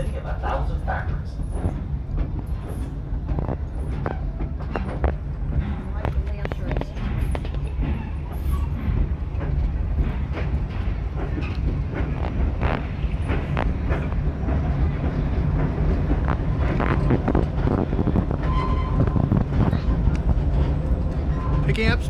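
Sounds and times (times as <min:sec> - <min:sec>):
rattling train car: 0:00.0 - 0:22.0
train rumbling: 0:00.0 - 0:22.0.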